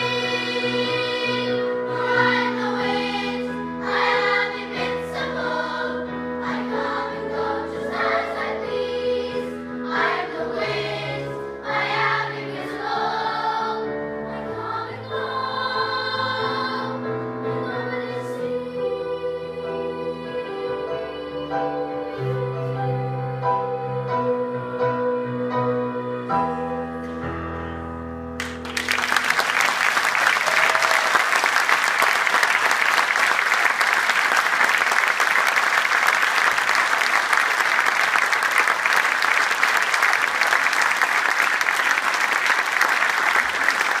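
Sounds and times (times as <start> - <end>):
piano chords: 0.0 - 29.4
audience applauding: 28.4 - 44.0.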